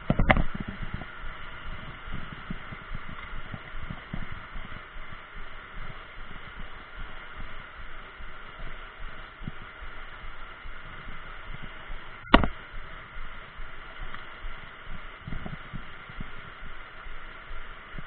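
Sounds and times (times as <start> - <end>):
low gusty rumbles: 0.0 - 18.0.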